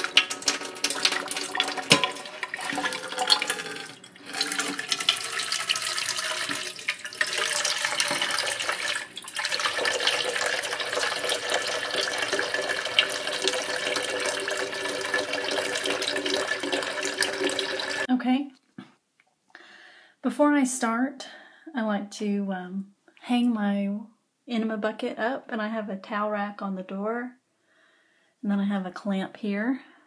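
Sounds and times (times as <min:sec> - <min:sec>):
tap water filling metal bucket: 0:00.0 - 0:18.1.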